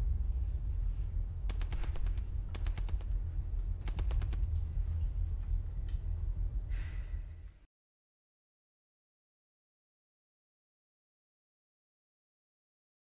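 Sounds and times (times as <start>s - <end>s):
steady low hum: 0.0s - 7.7s
rattling sharp clicks: 1.5s - 3.2s, 3.8s - 4.6s.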